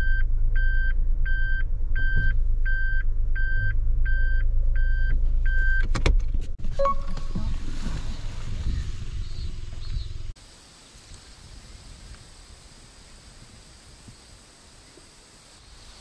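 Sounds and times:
car warning beeps: 0.0s - 5.9s, 6.7s - 7.5s
engine humming: 0.0s - 16.0s.

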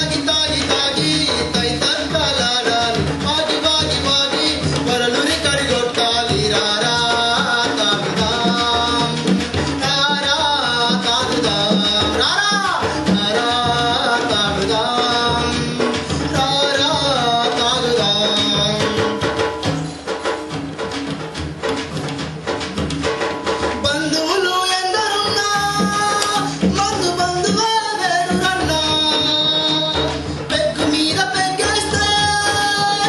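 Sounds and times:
drums and percussion: 0.0s - 33.0s
person singing: 23.9s - 33.0s.

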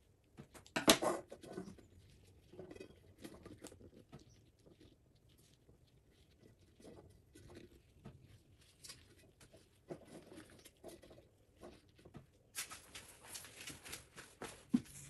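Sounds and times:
metallic paper crinkling: 1.3s - 15.0s.

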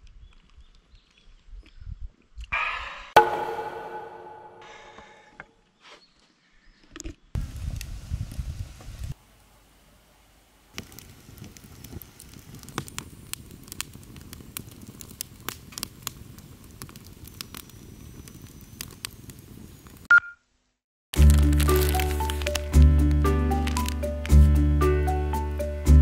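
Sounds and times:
brief loud ping: 3.2s - 5.2s
low rumble of flames: 7.4s - 9.2s, 10.7s - 20.1s, 21.2s - 24.4s
wood fire crackling and popping: 10.7s - 20.1s, 21.2s - 24.5s.

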